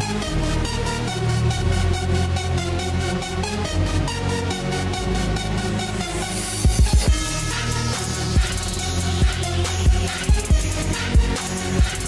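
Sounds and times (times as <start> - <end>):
electronic music with heavy bass: 0.0 - 12.0.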